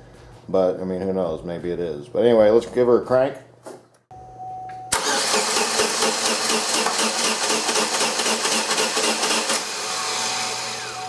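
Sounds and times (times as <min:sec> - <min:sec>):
engine cranking without starting: 0:04.9 - 0:10.1.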